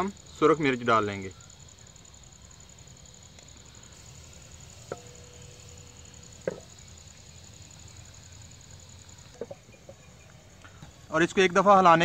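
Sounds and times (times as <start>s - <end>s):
spices frying in oil: 1.0s - 10.6s.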